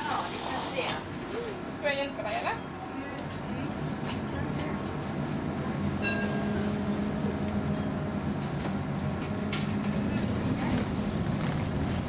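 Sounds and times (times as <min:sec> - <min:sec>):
tram car rumble: 0:00.0 - 0:12.0
tram electric motor hum: 0:02.9 - 0:12.0.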